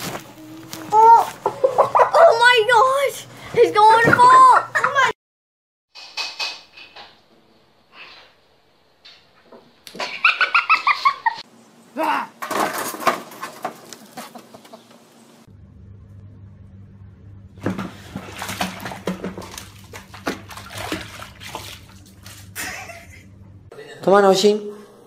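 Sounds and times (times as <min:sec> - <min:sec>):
low hum: 0:15.1 - 0:23.7
kitten splashing in water: 0:17.7 - 0:22.9.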